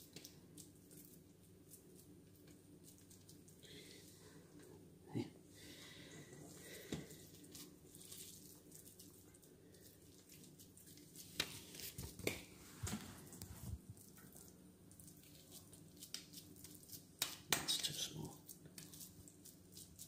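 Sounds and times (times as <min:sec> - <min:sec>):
hands squishing raw mince: 0:06.6 - 0:12.6, 0:13.9 - 0:20.0.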